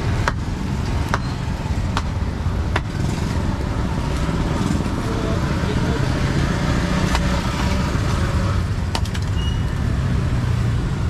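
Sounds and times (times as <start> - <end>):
traffic engines rumbling: 0.0 - 11.0
sharp clicks and knocks: 1.9 - 3.0, 8.9 - 9.4.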